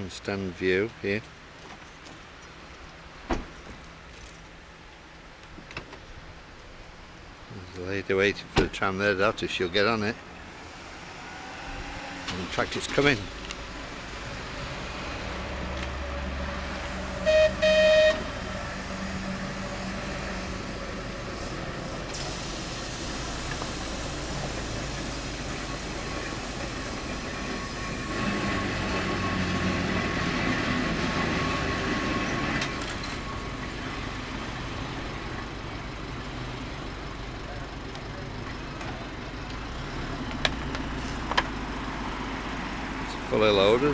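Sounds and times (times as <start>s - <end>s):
tram wheels and motors: 10.4s - 43.9s
horn toots: 17.1s - 18.4s.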